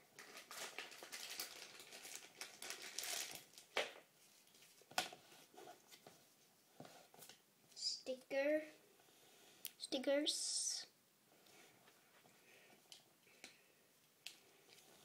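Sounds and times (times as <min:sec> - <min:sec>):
packaging crinkling: 0:00.2 - 0:03.9.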